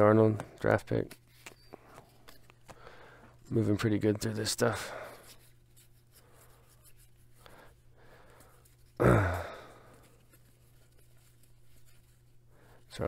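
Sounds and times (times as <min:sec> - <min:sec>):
cards rustling and ticking: 0:00.3 - 0:13.0
person sighing: 0:09.0 - 0:10.0.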